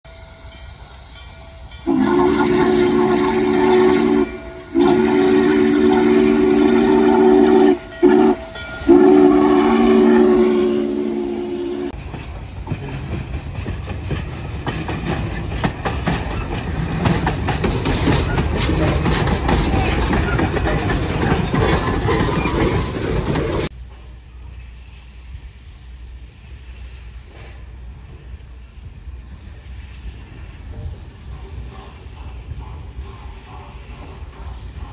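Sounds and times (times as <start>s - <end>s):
train rumbling past: 0.1s - 34.9s
steam whistle blasts: 1.8s - 12.0s
wheels clicking over rail joints: 11.9s - 23.8s.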